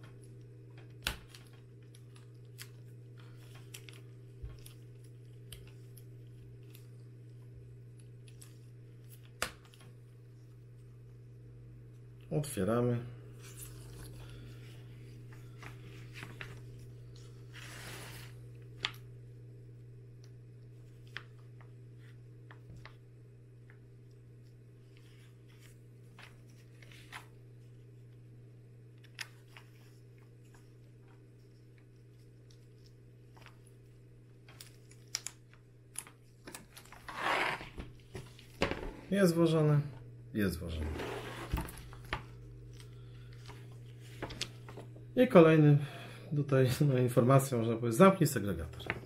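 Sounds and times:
steady low hum: 0.0s - 49.0s
magazine pages rustling: 13.3s - 19.0s, 24.8s - 27.8s, 40.7s - 45.0s.

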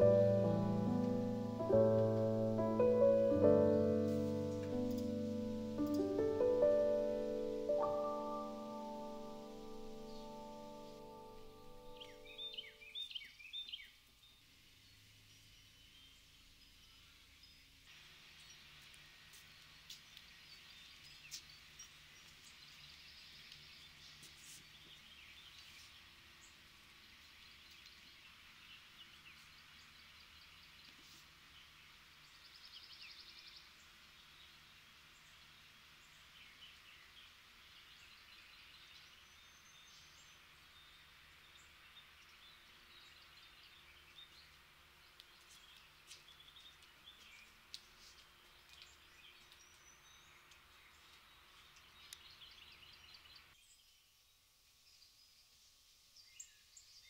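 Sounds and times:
small birds chirping: 0.0s - 57.0s
steady high hiss: 0.0s - 57.0s.

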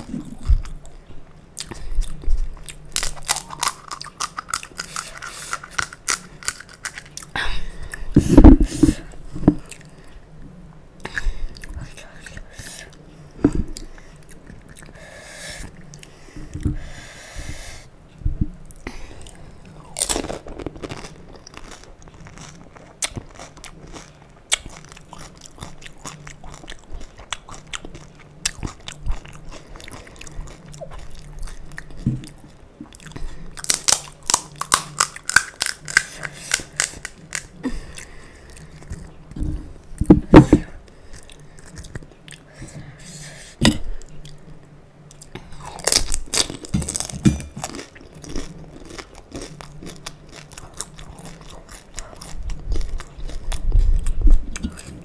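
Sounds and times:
chewing and crunching: 0.0s - 9.0s, 18.7s - 39.8s, 40.9s - 42.7s, 44.0s - 55.0s.

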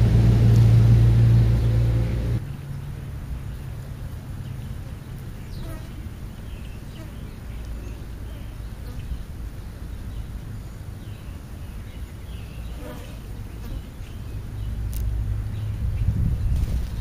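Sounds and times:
steady low hum: 0.0s - 17.0s
starlings chirping: 4.3s - 17.0s.

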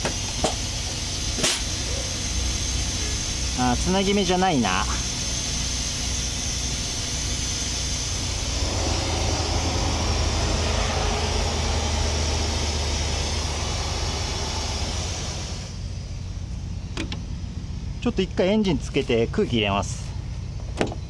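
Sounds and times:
compressed air hissing: 0.0s - 15.8s
low mechanical rumble: 0.0s - 21.0s.

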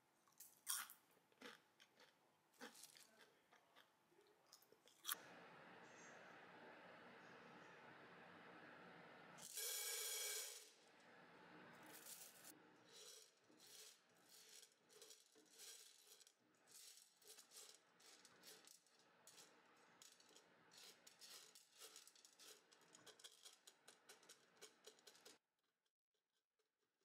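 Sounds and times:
popcorn kernels rattling in a pan: 9.4s - 10.8s, 11.8s - 25.4s.

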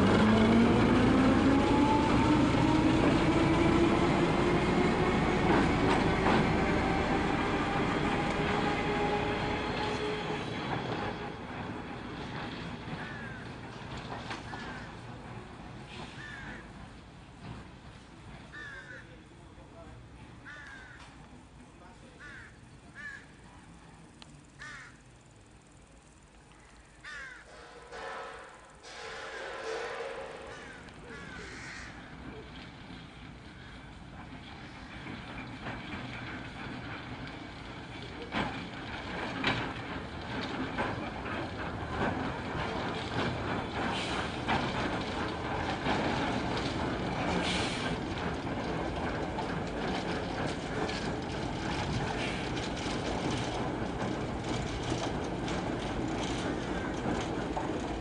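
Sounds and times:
locomotive running gear clanking: 0.0s - 20.0s, 27.6s - 58.0s
crow cawing: 16.2s - 16.6s, 18.5s - 19.1s, 20.5s - 21.1s, 22.2s - 23.3s, 24.6s - 25.0s, 27.0s - 27.5s, 30.5s - 32.1s
brief hiss: 47.4s - 47.9s.

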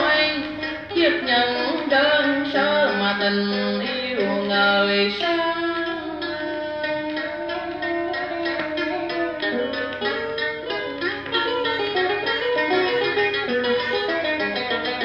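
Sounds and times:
person singing: 0.0s - 11.0s
plucked string accompaniment: 0.0s - 15.0s.

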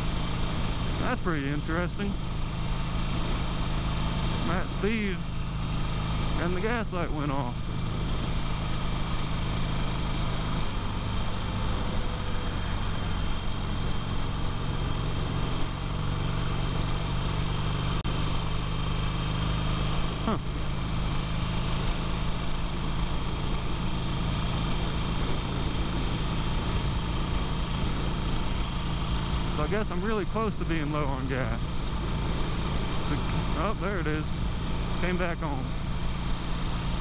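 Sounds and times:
motorcycle engine cruising: 0.0s - 37.0s.

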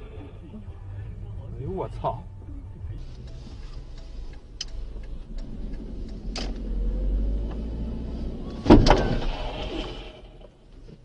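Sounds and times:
car road and engine rumble: 0.0s - 11.0s
sharp clicks: 4.0s - 6.7s
loud collision bang: 8.7s - 10.3s.

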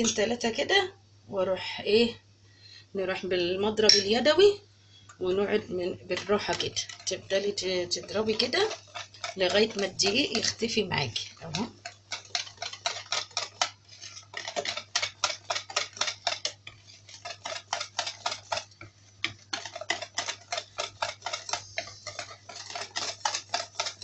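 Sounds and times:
whisk ticking against bowl: 5.8s - 24.0s.

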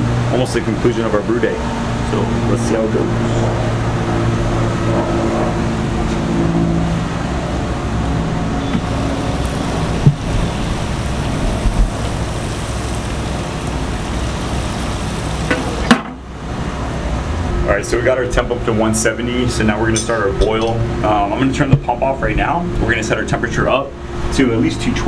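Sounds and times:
pump humming: 7.1s - 16.4s
liquid spraying hiss: 8.8s - 15.9s.

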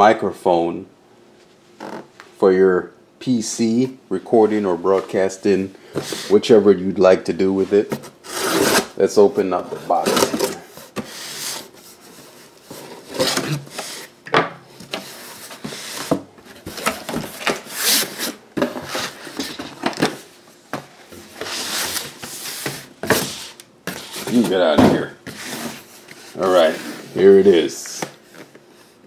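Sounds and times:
cardboard scraping and rubbing: 7.6s - 9.0s, 9.6s - 14.1s, 21.2s - 27.6s.

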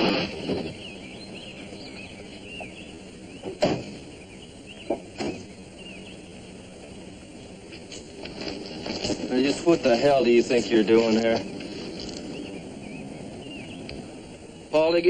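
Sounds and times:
small birds chirping: 0.0s - 15.0s
sharp knocks: 3.4s - 4.1s, 4.8s - 5.5s.

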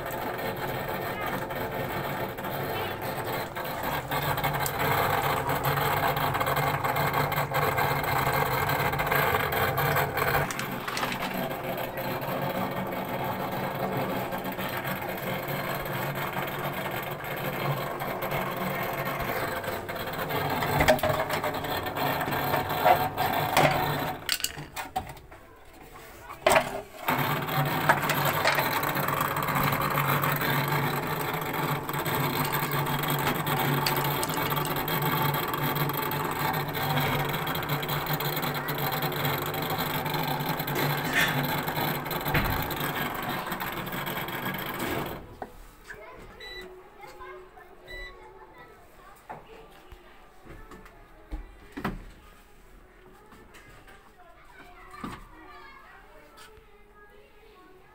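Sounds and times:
drain pump humming: 0.0s - 25.1s, 26.4s - 45.4s.

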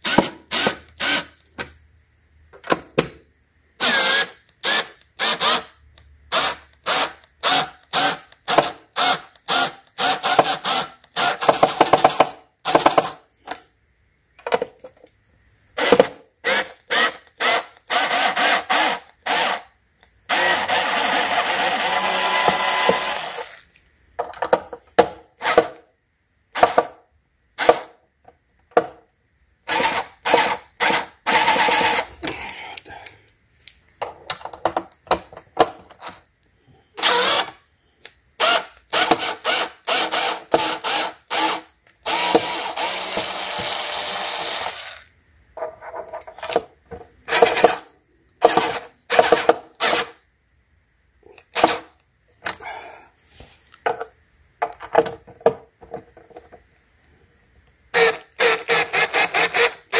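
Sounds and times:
electric screwdriver running: 0.1s - 1.3s, 3.8s - 5.7s, 15.8s - 19.7s, 20.3s - 23.6s, 29.7s - 32.1s, 37.0s - 37.6s, 38.4s - 45.1s, 48.4s - 50.1s, 58.0s - 59.9s.

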